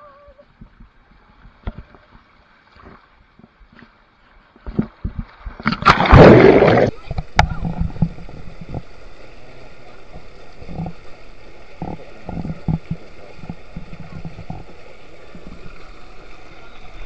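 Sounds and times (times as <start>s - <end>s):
rushing water: 0.0s - 17.0s
loud splash into pool: 5.6s - 7.1s.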